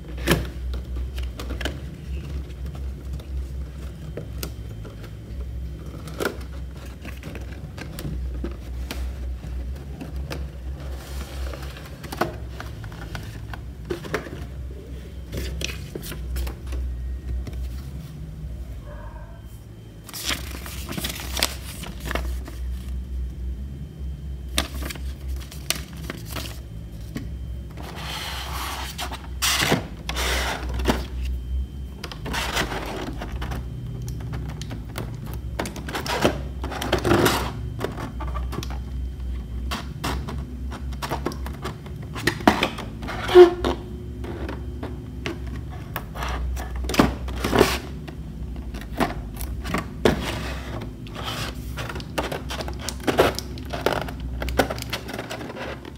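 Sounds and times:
low steady hum: 0.0 - 55.9
plastic box clicks and scrapes: 39.6 - 55.9.

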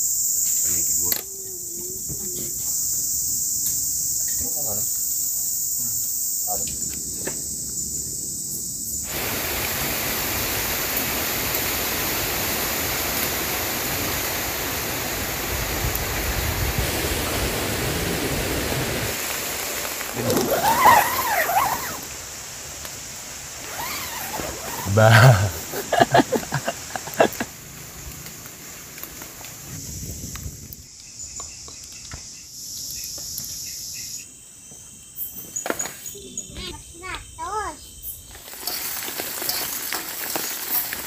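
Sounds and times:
insects chirping: 0.0 - 41.0
heavy rain through trees: 9.0 - 30.7, 38.4 - 41.0.

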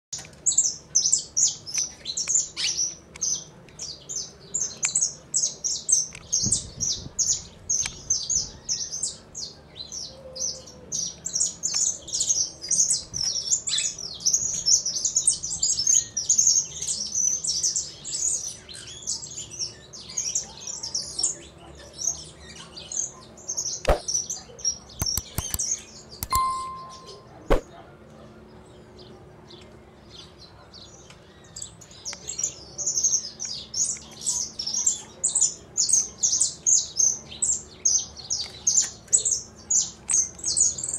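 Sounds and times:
small birds chirping: 0.2 - 27.6, 28.4 - 40.9
sharp click: 23.8 - 24.1, 25.0 - 27.6.

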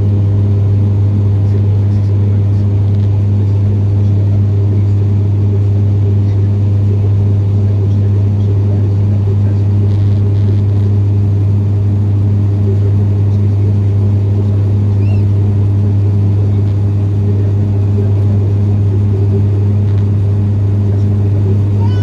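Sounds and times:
jet engine drone in cabin: 0.0 - 22.0.

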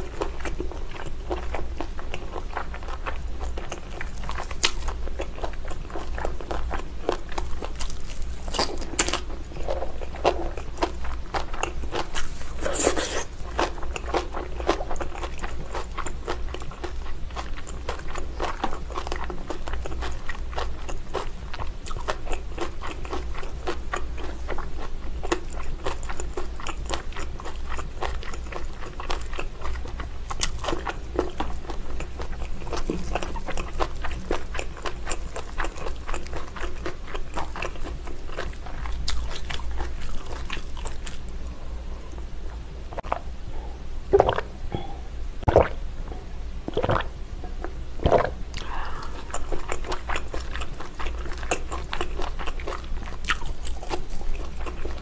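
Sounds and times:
close chewing and biting: 0.0 - 41.4, 48.0 - 55.0
loud gulps swallowing drink: 44.1 - 45.8, 46.7 - 47.1, 48.0 - 49.2.

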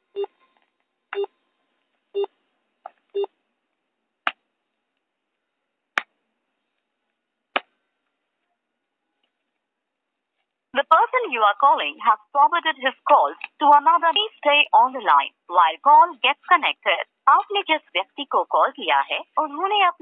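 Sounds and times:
recorded phone announcement: 10.8 - 20.0.

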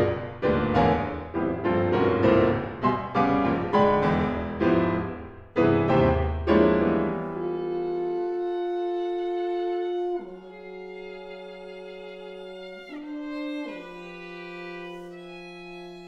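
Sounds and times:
piano chords ringing: 0.0 - 8.5
long held note: 7.4 - 10.5.

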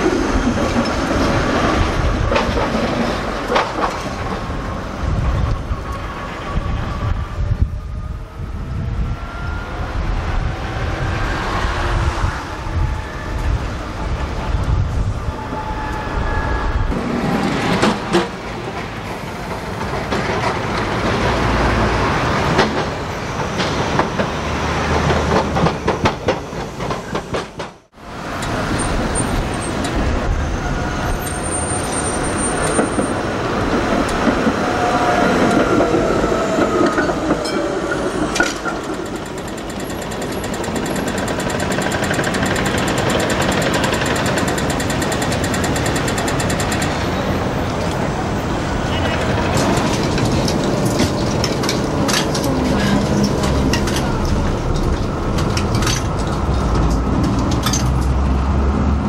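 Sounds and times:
faint tram whine: 0.0 - 59.0
rumble of passing vehicles: 3.0 - 59.0
clicks and rattles: 49.2 - 58.2.

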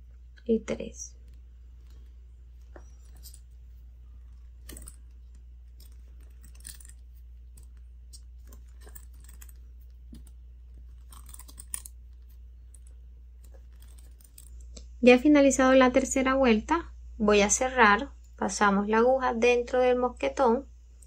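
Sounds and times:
low steady hum: 0.0 - 21.0
crochet hook clicking and rustling: 1.2 - 14.9
metal clasp clinking: 2.8 - 3.5, 4.6 - 12.0.

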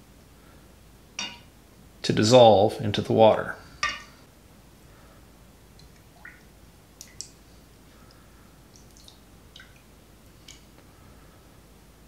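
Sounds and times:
water dripping into bowl: 5.8 - 7.4, 8.1 - 10.6.

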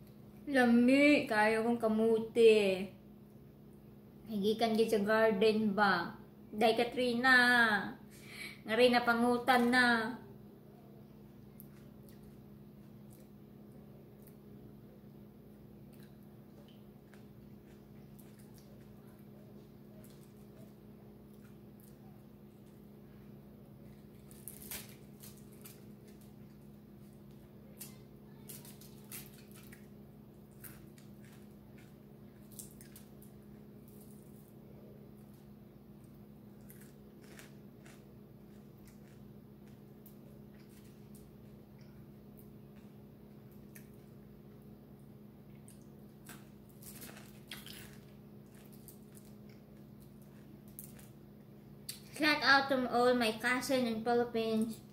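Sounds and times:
steady low hum: 0.0 - 54.9
wet eating smacks and clicks: 11.4 - 13.4, 15.8 - 19.0, 27.3 - 34.4, 45.4 - 51.2
wet chewing and lip smacks: 15.8 - 19.2, 45.4 - 51.2, 51.8 - 52.1.

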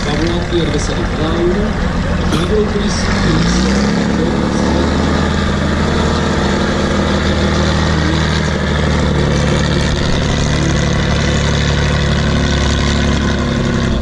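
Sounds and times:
truck diesel engine under load: 0.0 - 14.0.

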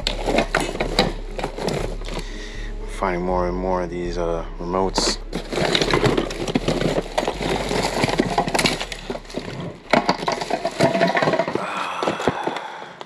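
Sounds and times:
hard plastic items clattering: 0.0 - 2.6, 5.0 - 13.0
plastic bags rustling: 0.0 - 2.6, 5.2 - 13.0.

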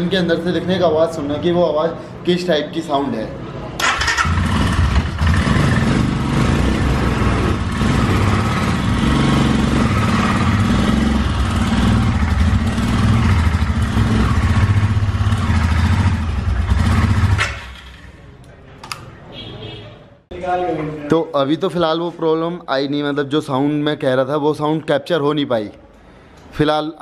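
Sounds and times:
motorcycle engine rumbling: 3.8 - 18.6.

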